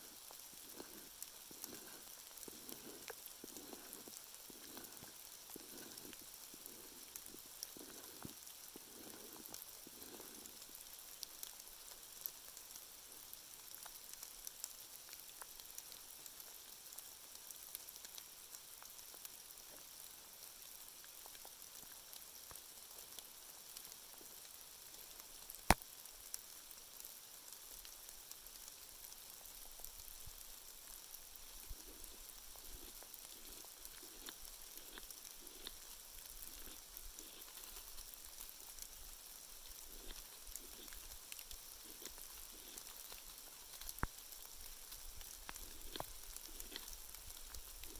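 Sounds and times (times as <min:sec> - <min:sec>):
rain patter: 0:00.0 - 0:47.9.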